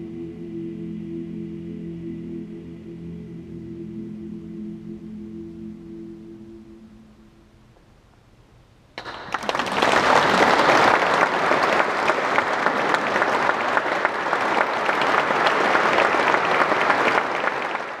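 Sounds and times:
audience applause: 9.0 - 18.0.

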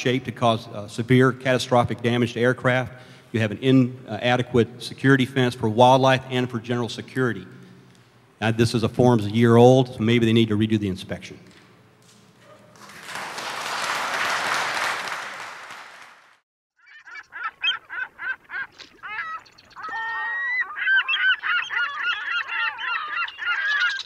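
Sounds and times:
flock of birds calling: 16.8 - 24.0.

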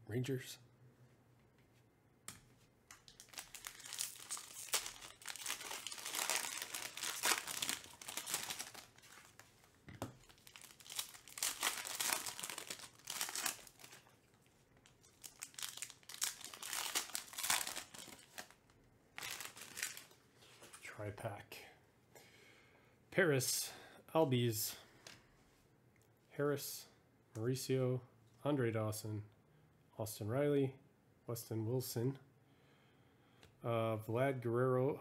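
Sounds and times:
foil wrapper crinkling and tearing: 3.0 - 9.5, 10.2 - 20.2.

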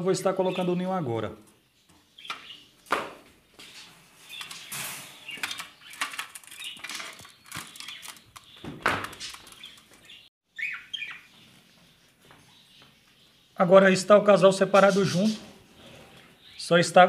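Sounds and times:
bird chirps: 0.4 - 2.8, 4.2 - 17.0
birds fluttering and scrabbling: 3.6 - 10.3.

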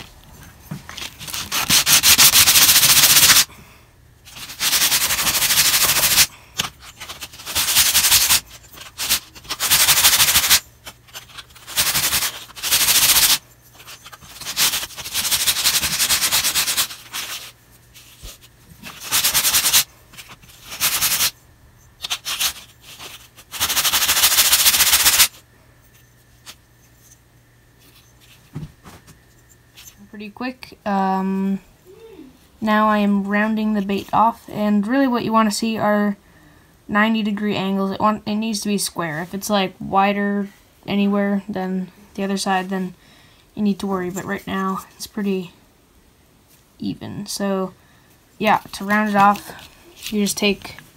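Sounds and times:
wood rubbing on coarse sandpaper: 1.0 - 3.5, 4.3 - 21.4, 22.0 - 25.4, 48.4 - 50.6.

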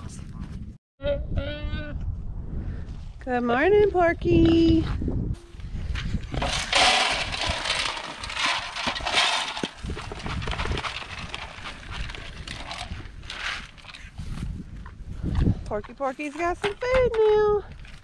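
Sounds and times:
pig crunching pellets: 6.3 - 16.7
pellets rattling into metal pan: 6.4 - 14.0.

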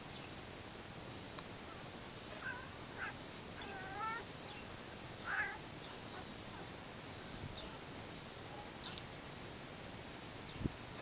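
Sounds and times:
cat meowing: 2.4 - 4.3, 5.2 - 5.6.

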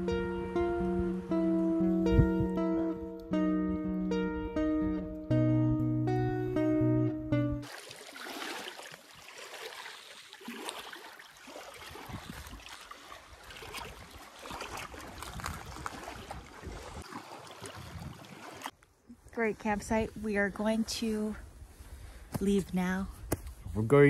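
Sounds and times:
small waves lapping on rocky shore: 7.6 - 18.8.

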